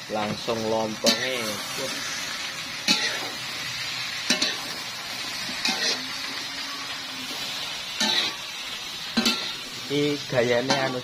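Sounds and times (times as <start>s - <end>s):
vegetables sizzling in a wok: 0.0s - 11.0s
metal spatula scraping pan: 1.0s - 3.5s, 4.2s - 4.9s, 5.5s - 6.1s, 6.7s - 8.4s, 9.1s - 9.7s.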